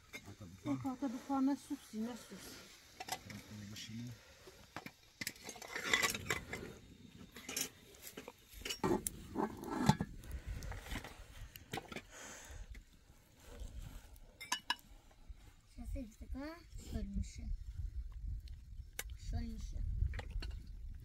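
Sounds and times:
glass cups and dishes clinking: 14.4 - 14.8.

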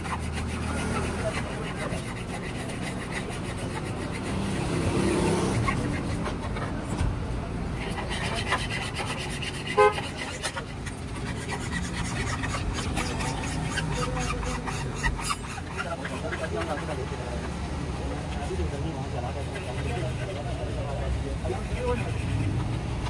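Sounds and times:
sharp squeak: 11.3 - 15.8.

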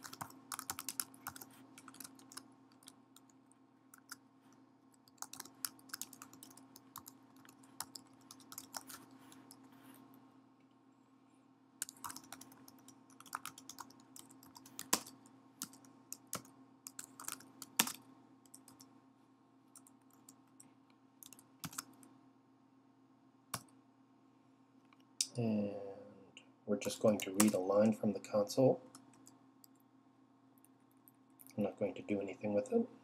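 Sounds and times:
computer keyboard typing: 0.0 - 4.2, 5.0 - 9.6, 11.8 - 18.9, 19.8 - 20.6, 21.2 - 22.1, 27.0 - 27.6
faint steady hum: 0.0 - 33.0.

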